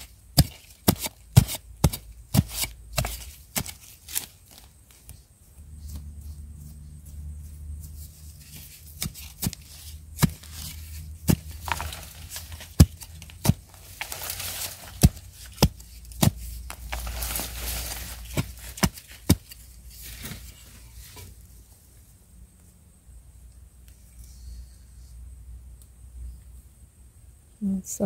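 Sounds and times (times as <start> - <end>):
digging tool striking soil: 0.0 - 4.7, 8.2 - 20.6
earth scraping: 5.8 - 21.4.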